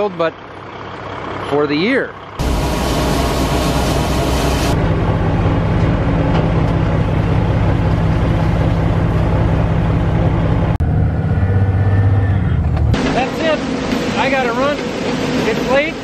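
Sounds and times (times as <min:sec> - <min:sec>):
tractor engine humming: 0:00.0 - 0:16.0
grain rushing: 0:02.4 - 0:04.8.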